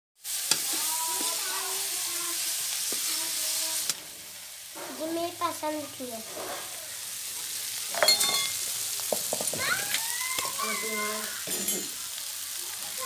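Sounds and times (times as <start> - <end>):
beans sizzling in a pan: 0.2 - 13.0
metal spoon scraping pan: 6.2 - 6.8
ringing metal clink: 8.0 - 8.6.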